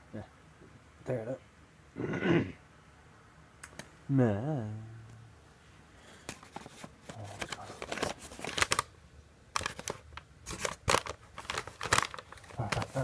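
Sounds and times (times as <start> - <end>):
paper bag crinkling: 6.4 - 8.9, 9.5 - 13.0.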